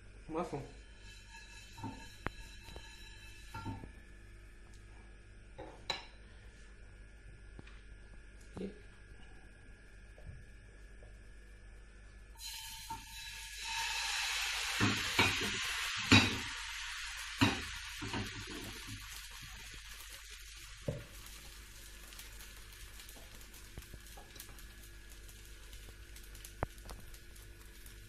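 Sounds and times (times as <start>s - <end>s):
batter sizzling in a skillet: 0.5s - 4.8s, 12.3s - 28.0s.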